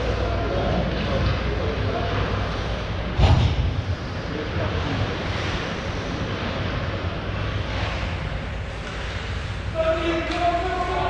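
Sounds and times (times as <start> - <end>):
arena hum and hiss: 0.0 - 11.0
sharp thump: 3.2 - 3.8.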